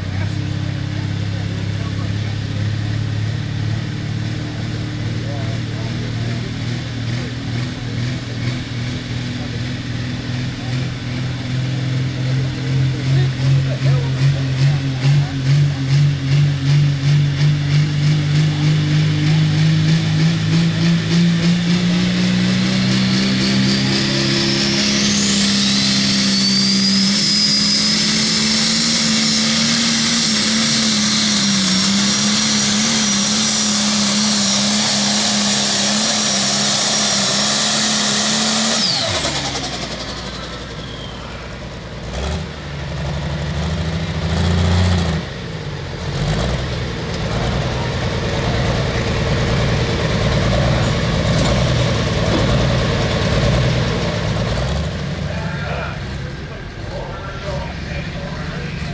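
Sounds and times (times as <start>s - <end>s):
diesel engine revving: 0.0s - 58.9s
turbo whine: 18.2s - 42.6s.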